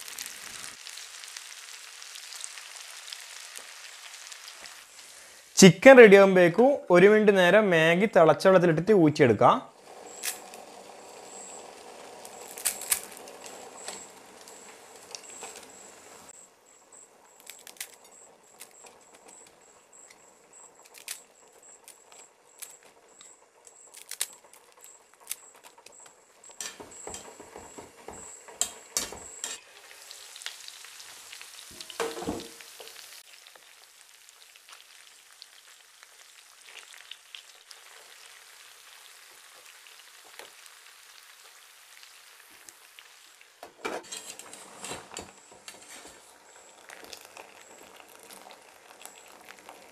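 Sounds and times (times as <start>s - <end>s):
chicken sizzling in oil: 0.0s - 5.6s, 9.7s - 49.9s
dry noodles snapping: 12.5s - 13.2s, 17.4s - 18.0s, 20.9s - 21.2s, 23.9s - 24.4s.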